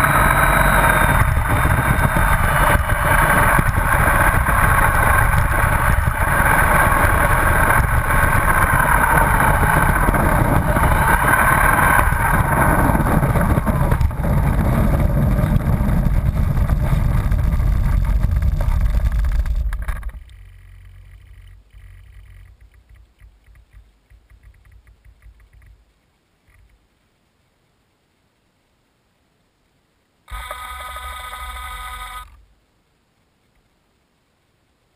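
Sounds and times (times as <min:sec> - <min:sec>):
model airplane motor and propeller: 0:00.0 - 0:25.8, 0:30.3 - 0:32.4
faint rattles and ticks: 0:00.0 - 0:27.2.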